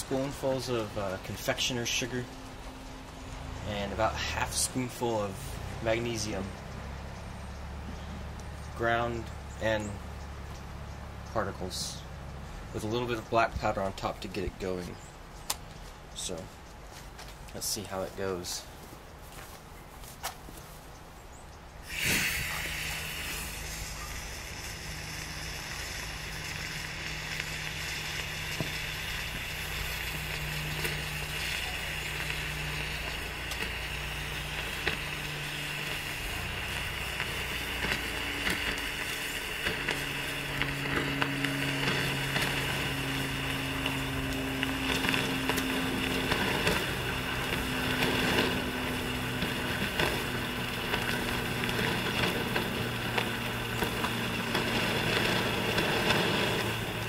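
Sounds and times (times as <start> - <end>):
rocket motor rushing burn: 0.0 - 10.0, 21.8 - 57.0
rocket motor flaring: 21.8 - 57.0
small crackles: 21.9 - 57.0.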